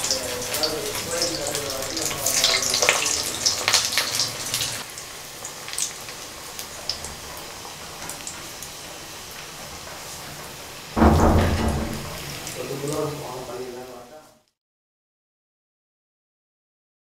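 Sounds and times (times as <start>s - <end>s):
meatballs sizzling in hot oil: 0.0s - 11.0s
oil popping: 9.4s - 13.4s.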